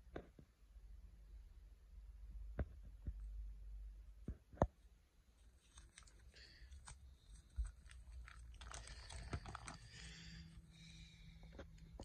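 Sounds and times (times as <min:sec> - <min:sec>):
plastic binder pages turning: 0:05.4 - 0:10.6
plastic crinkling: 0:05.4 - 0:10.6.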